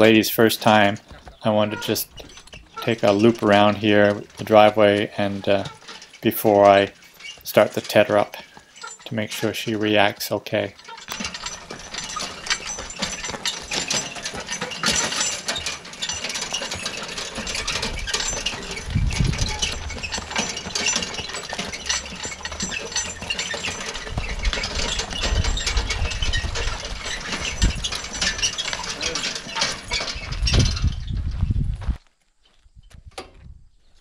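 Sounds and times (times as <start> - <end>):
dense metallic clicks: 0.0 - 31.0
horse-drawn cart rattling: 0.0 - 31.4
low rumbling: 17.4 - 21.2.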